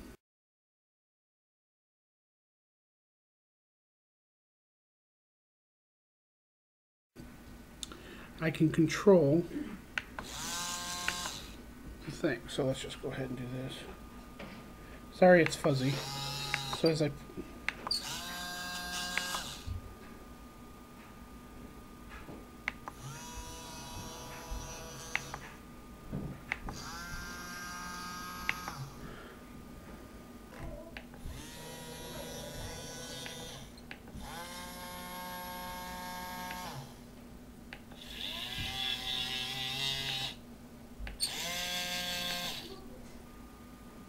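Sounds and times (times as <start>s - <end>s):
small gear motors whining: 10.2s - 11.6s, 15.8s - 17.1s, 17.8s - 19.8s, 22.9s - 25.6s, 26.7s - 29.0s, 31.2s - 37.0s, 38.0s - 40.4s, 41.2s - 42.8s.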